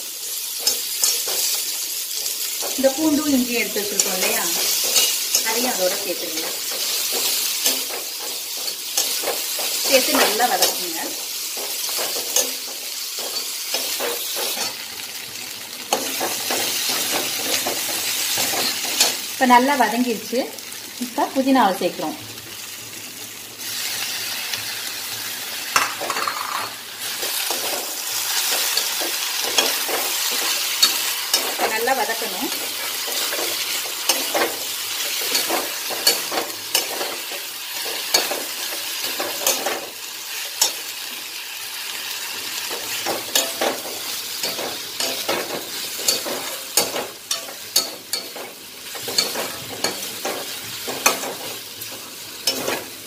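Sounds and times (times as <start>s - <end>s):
vegetables sizzling in hot oil: 0.0s - 53.0s.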